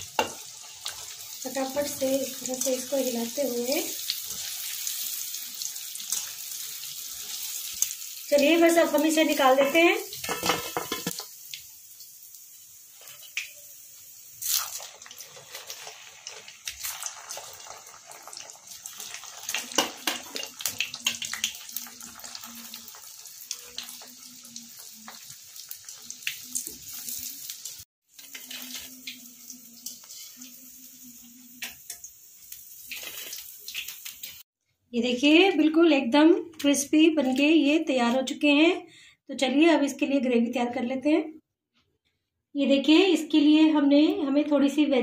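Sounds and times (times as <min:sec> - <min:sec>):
food sizzling in hot oil: 0:00.0 - 0:34.5.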